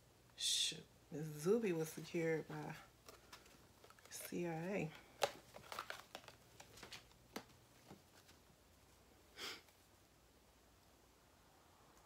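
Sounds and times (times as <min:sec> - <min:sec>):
room hum: 0:00.0 - 0:12.0
person sniffing: 0:09.3 - 0:09.7.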